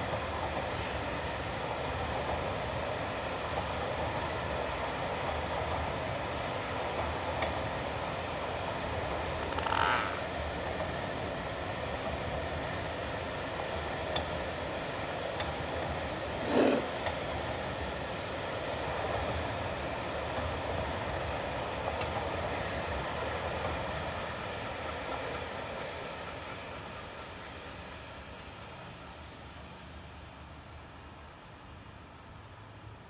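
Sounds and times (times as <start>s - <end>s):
train wheels rumbling on rail: 0.0s - 33.0s
sharp wheel squeaks: 9.4s - 10.3s.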